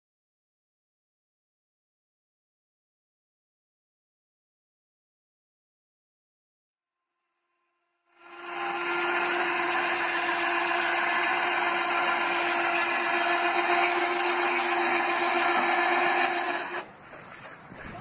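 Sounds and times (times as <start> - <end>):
electric motor humming: 8.1 - 17.0.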